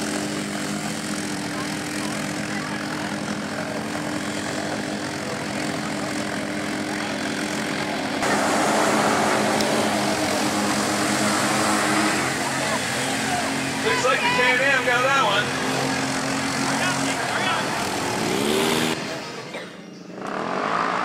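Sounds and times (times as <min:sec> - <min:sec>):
utility vehicle engines running hard: 0:00.0 - 0:21.0
water spray hissing: 0:08.2 - 0:13.8.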